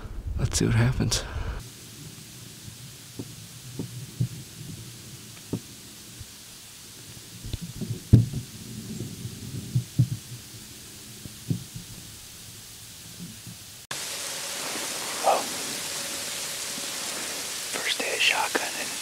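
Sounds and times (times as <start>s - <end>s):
steady hiss: 0.6s - 19.0s
dull thumps against microphone: 7.5s - 8.4s.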